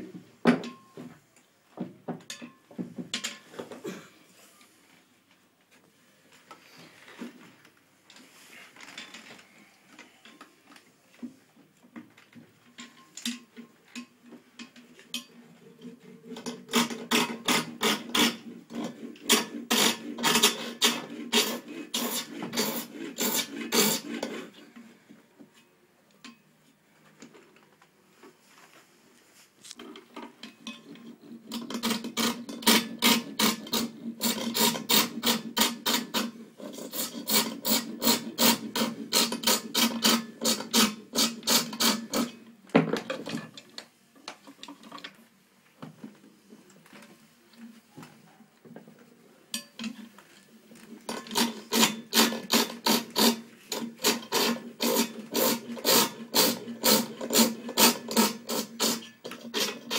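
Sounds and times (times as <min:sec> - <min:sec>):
hand file rasping on metal: 0:16.3 - 0:24.8, 0:30.6 - 0:42.4, 0:51.1 - 0:59.9.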